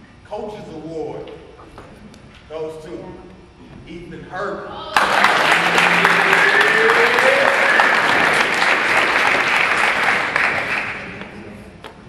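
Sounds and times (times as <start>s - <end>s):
group of people clapping: 4.9s - 11.5s.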